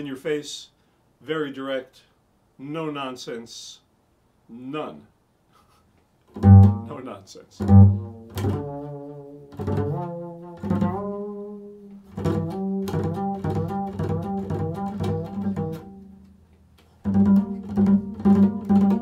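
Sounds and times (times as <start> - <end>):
double bass plucked: 6.3 - 7.0, 7.6 - 19.0.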